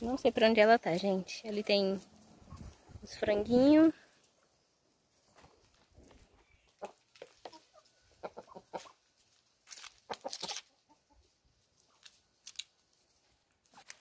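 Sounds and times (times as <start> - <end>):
chickens clucking: 0.6 - 3.0, 4.2 - 9.4, 10.0 - 11.6.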